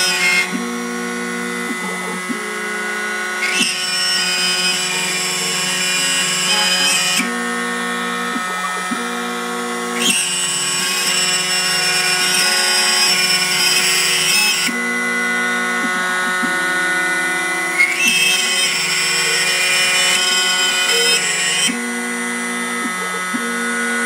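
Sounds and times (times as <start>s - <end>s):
router spindle whining: 0.0s - 24.0s
stepping motor tones: 0.0s - 24.0s.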